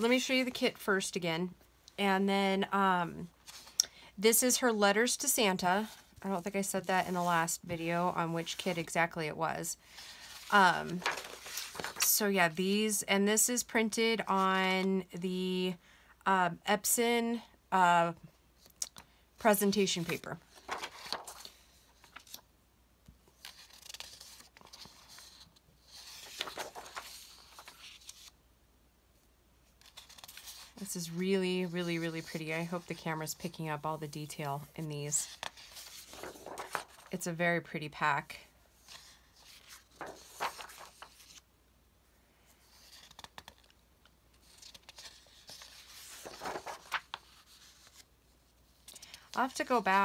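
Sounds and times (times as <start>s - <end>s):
paper sheets rustling: 9.9s - 12.2s, 19.6s - 22.4s, 23.3s - 28.3s, 29.8s - 37.1s, 38.8s - 41.4s, 42.6s - 43.7s, 44.3s - 48.1s.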